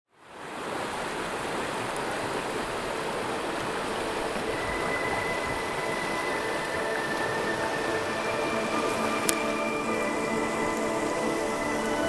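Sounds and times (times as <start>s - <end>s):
steady rushing noise: 1.0s - 12.0s
thin high tone: 3.7s - 12.0s.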